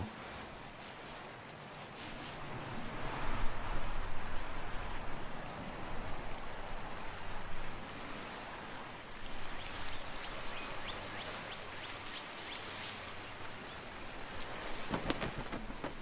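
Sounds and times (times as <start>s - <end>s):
outdoor ambience hiss: 0.0s - 16.0s.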